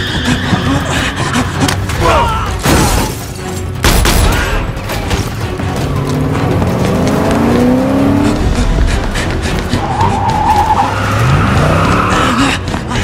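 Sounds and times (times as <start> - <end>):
car engine revving: 5.8 - 12.0.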